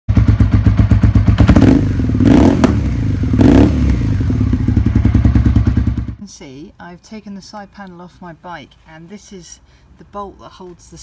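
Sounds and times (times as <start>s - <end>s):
motorcycle engine revving: 0.1s - 6.2s.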